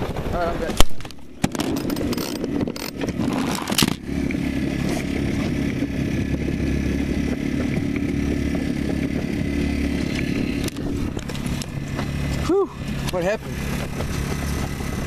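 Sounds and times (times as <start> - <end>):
low motor drone: 0.7 - 15.0
camera handling knocks and scraping: 0.8 - 4.0, 10.1 - 12.2.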